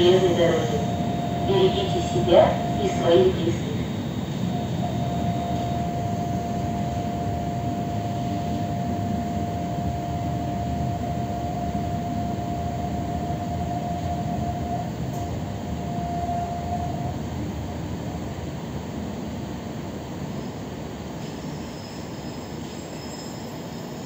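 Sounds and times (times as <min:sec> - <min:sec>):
high electric hum: 0:00.0 - 0:19.3.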